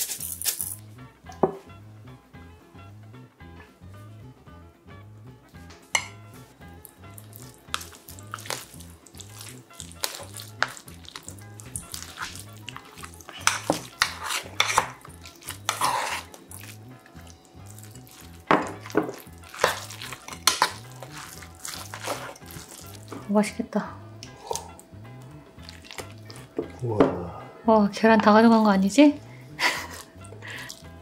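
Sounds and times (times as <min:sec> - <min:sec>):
quiet background music beat: 0:00.0 - 0:31.0
spoon scraping metal bowl: 0:11.8 - 0:16.7, 0:18.2 - 0:23.2.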